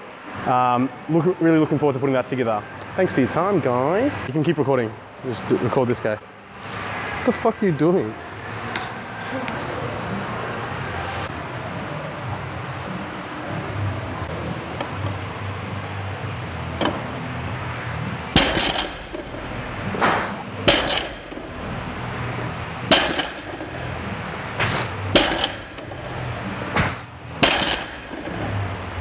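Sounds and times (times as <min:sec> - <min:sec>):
barbell plates rattling: 0:18.4 - 0:20.0, 0:20.6 - 0:22.0, 0:22.9 - 0:24.0, 0:25.1 - 0:26.4, 0:27.4 - 0:29.0
barbell thudding on platform: 0:18.4 - 0:21.8, 0:22.9 - 0:23.8, 0:24.6 - 0:26.1, 0:26.8 - 0:28.6.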